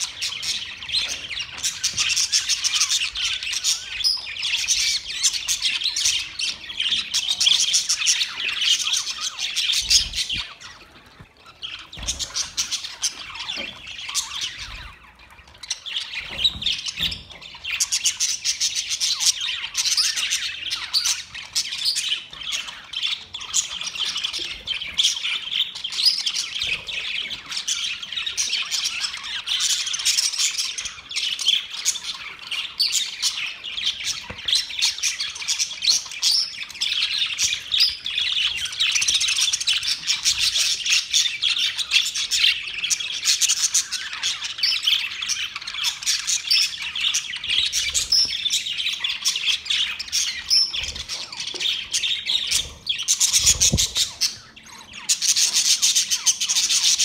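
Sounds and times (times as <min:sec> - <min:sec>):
budgerigars chattering: 0:00.0 - 0:57.0.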